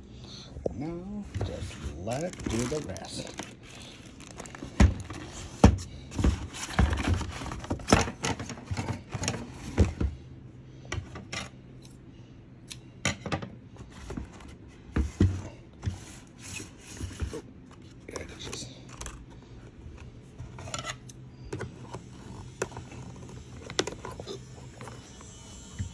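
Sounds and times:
packaging clicks and rubbing: 0:02.2 - 0:05.4.

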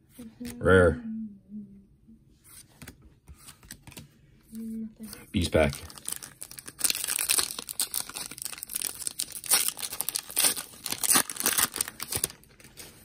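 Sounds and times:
foil wrapper tearing and crinkling: 0:05.6 - 0:12.9.

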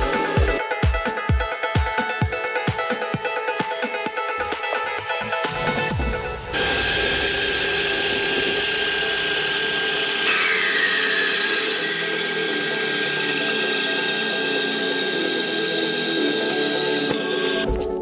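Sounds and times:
band saw cutting steel: 0:00.0 - 0:00.6, 0:06.5 - 0:17.7
falling squeal: 0:10.3 - 0:12.4.

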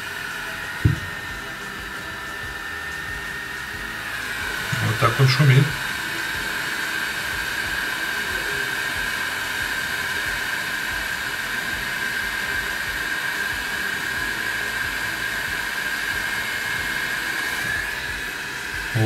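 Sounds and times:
cooling fan whining: 0:00.0 - 0:19.0.

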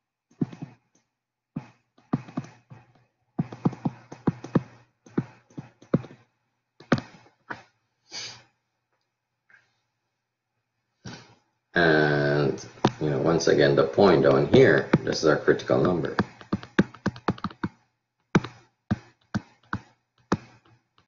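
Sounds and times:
stylus tapping on tablet screen: 0:00.3 - 0:07.7, 0:14.4 - 0:21.0.

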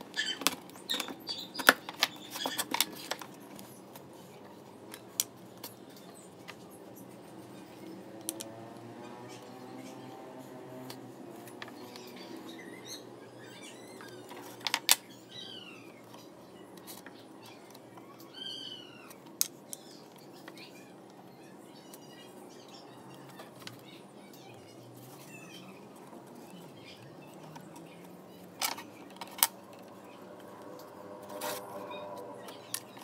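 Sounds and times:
high chirping animal calls: 0:15.1 - 0:19.2.

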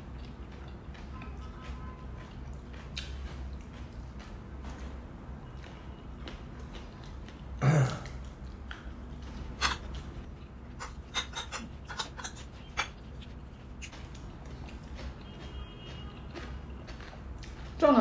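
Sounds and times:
chewing: 0:00.0 - 0:18.0
cutlery scraping on plates: 0:10.8 - 0:13.1.

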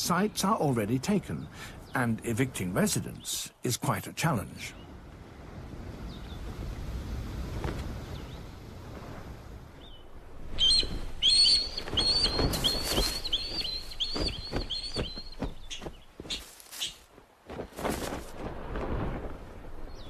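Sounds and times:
wings flapping: 0:10.5 - 0:19.9.

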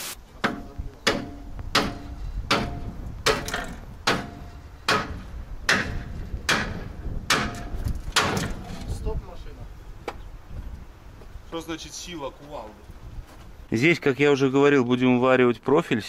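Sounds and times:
sledgehammer striking metal: 0:00.4 - 0:08.6.

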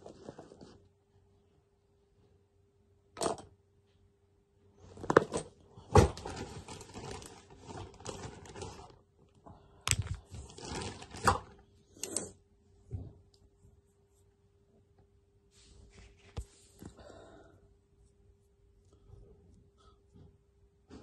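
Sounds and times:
plastic bag rustling: 0:06.0 - 0:09.0, 0:09.9 - 0:11.7.

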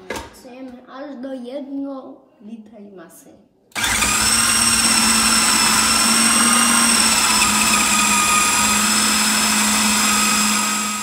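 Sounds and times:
electric blender whining: 0:03.8 - 0:11.0.

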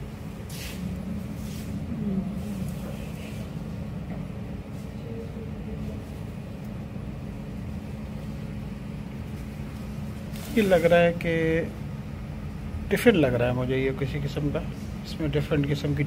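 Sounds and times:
low indoor hum: 0:00.0 - 0:16.0.

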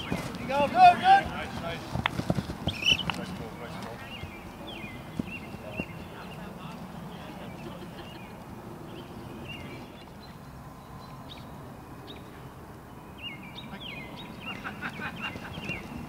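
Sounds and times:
running footsteps: 0:00.0 - 0:06.9, 0:15.0 - 0:16.0
outdoor background hiss: 0:00.0 - 0:16.0.

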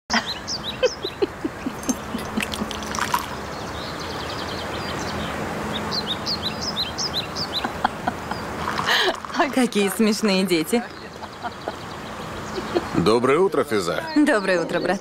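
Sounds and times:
birds chirping: 0:00.1 - 0:15.0
liquid pouring into a cup: 0:01.8 - 0:03.4, 0:08.6 - 0:10.0.

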